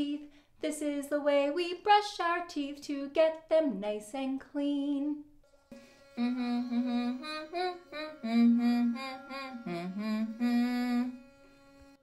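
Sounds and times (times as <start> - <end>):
electric toothbrush buzzing: 5.8 - 12.0
woman humming: 6.2 - 11.3.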